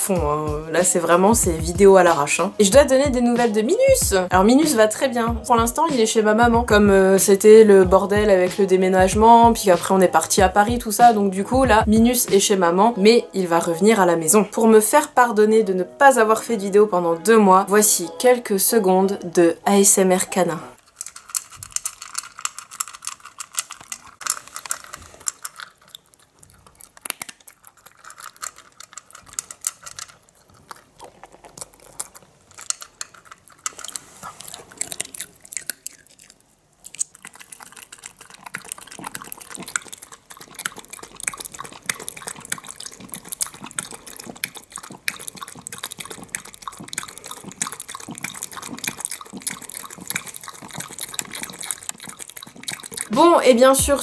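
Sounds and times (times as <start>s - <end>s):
dog lapping water: 6.4s - 12.6s, 37.0s - 54.0s
dog crunching dry kibble: 20.8s - 54.0s.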